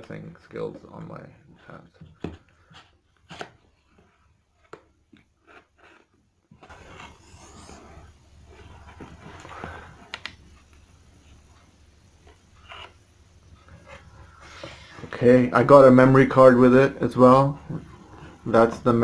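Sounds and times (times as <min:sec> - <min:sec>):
cardboard scraping and rustling: 0:05.5 - 0:10.0.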